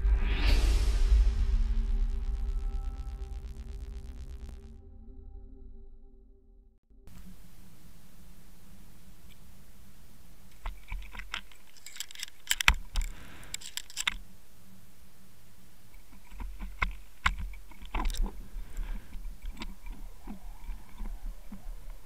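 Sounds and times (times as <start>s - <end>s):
low steady rumble: 0.0s - 6.0s.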